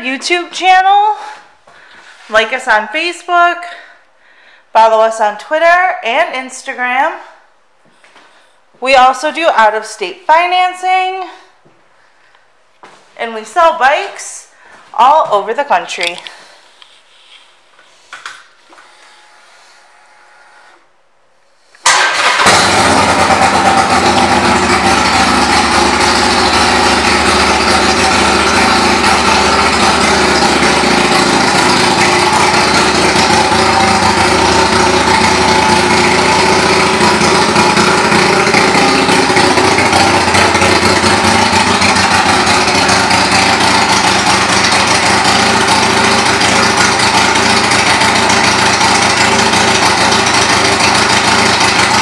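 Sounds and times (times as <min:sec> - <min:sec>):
motorcycle engine starting: 0:21.8 - 0:52.0
motorcycle engine idling loudly: 0:22.2 - 0:52.0.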